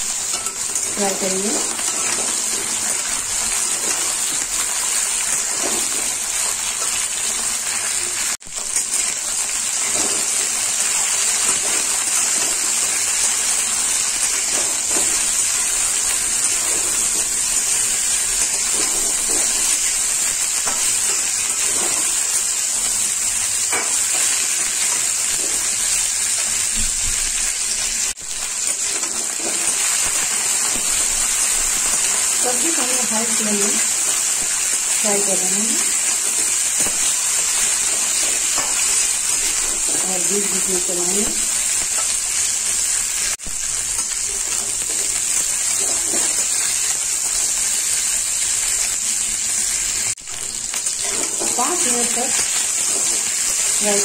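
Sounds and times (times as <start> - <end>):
vegetables sizzling in oil: 0.0 - 54.0
spatula scraping pan: 16.3 - 22.4.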